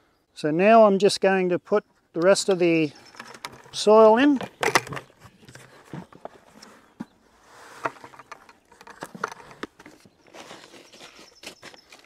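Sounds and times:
plastic bucket knocks and clatters: 3.1s - 6.4s, 7.8s - 10.1s
soil sliding out of bucket: 5.2s - 12.0s.

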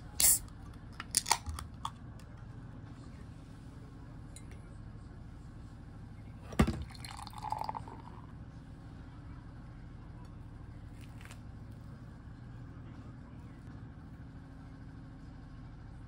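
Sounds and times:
steady low hum: 0.0s - 16.0s
beer glass clinking: 6.6s - 8.2s
beer being poured: 6.6s - 8.3s.

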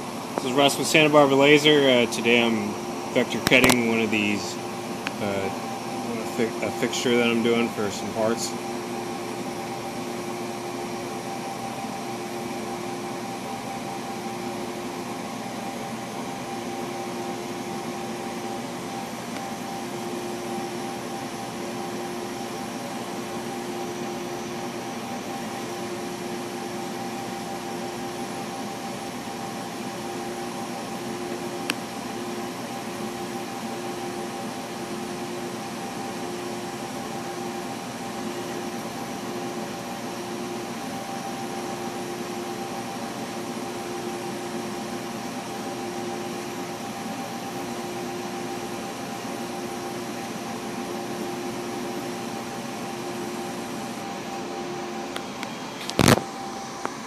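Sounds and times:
laser cutter air rush and hum: 0.0s - 57.0s
sharp click: 3.4s - 3.9s.

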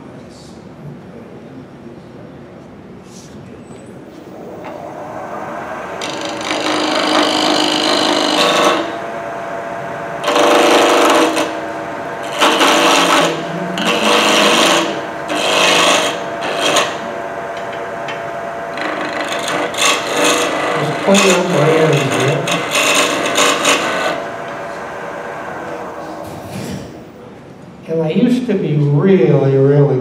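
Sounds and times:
wood lathe running: 4.2s - 26.3s
tool rasping on wood: 5.9s - 9.1s, 10.2s - 25.2s.

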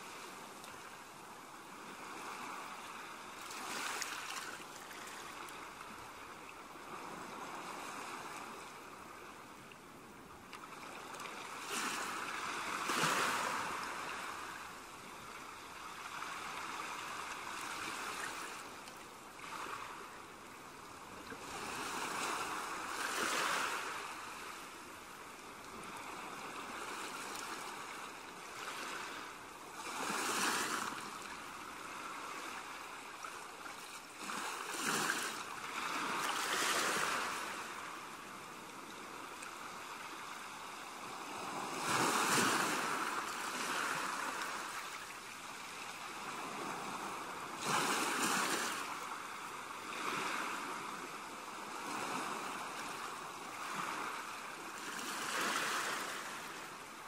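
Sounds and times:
ocean waves breaking on beach: 0.0s - 57.0s.

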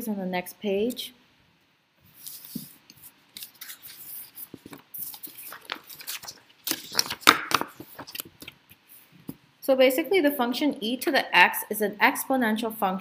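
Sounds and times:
paper rustling and crinkling: 2.1s - 8.6s.

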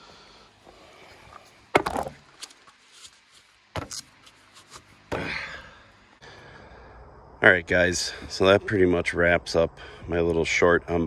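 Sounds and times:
knocks on wooden boards: 1.7s - 2.2s.

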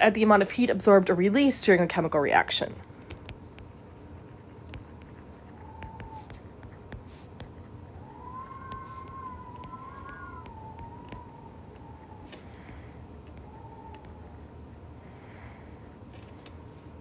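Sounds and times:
stylus tapping on tablet screen: 3.0s - 3.9s, 4.6s - 7.6s, 8.4s - 11.4s
faint wavering high tone: 8.1s - 12.3s.

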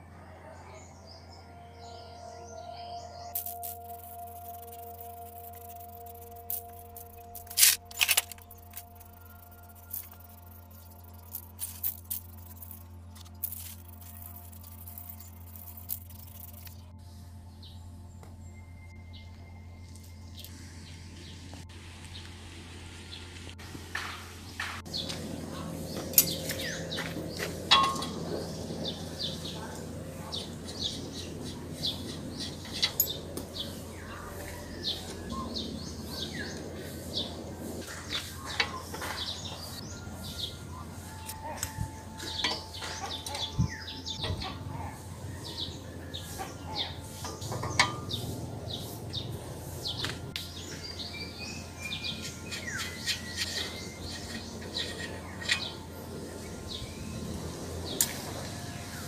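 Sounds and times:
small birds chirping: 0.0s - 22.4s, 24.2s - 59.0s
metal parts clicking and knocking: 3.4s - 16.9s, 27.7s - 28.3s, 31.4s - 33.7s, 41.2s - 44.5s, 47.0s - 48.3s, 51.8s - 56.0s.

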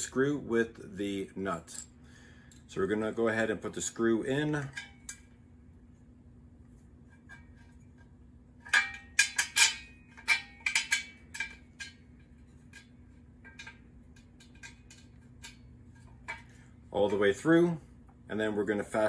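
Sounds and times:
screw clinking against metal bracket: 8.6s - 16.6s.

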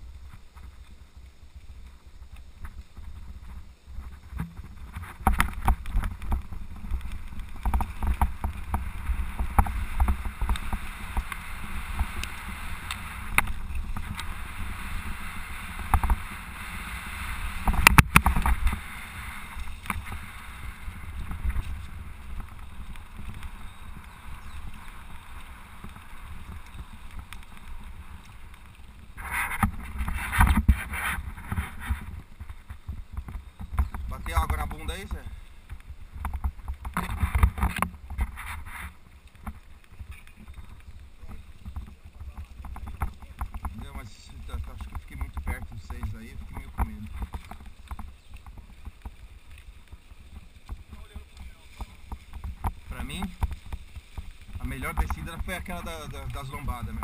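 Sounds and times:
tyres rolling over dirt: 0.0s - 57.0s
bike rattling over bumps: 1.7s - 57.0s
steady low rumble: 1.8s - 30.3s.

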